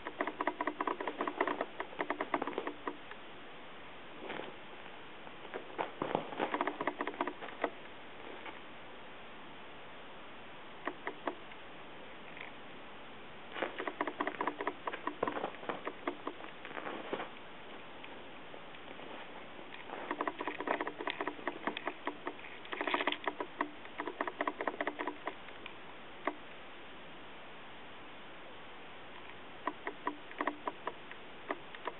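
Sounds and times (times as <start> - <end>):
rapid clicking and pattering: 0.0 - 3.1, 6.3 - 7.8, 10.8 - 11.4, 13.6 - 16.6, 19.7 - 26.4, 29.6 - 31.9
steady hiss: 0.0 - 31.9.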